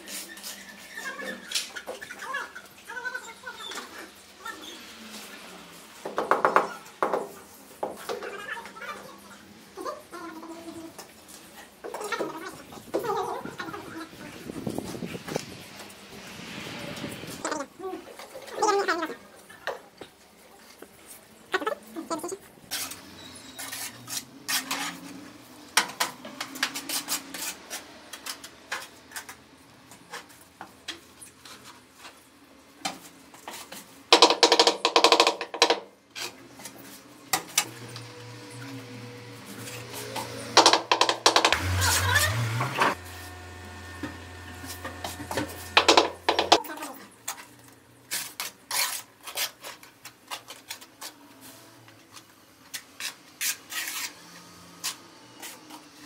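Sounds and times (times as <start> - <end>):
tools and tiles knocking: 6.0 - 8.3, 34.1 - 35.9, 40.6 - 41.6, 45.2 - 46.6.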